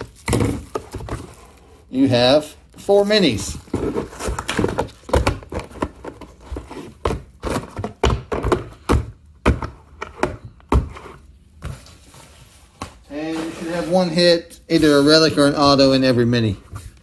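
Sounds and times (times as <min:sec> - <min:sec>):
boxes thunking on table: 0:00.0 - 0:01.4, 0:03.5 - 0:11.9.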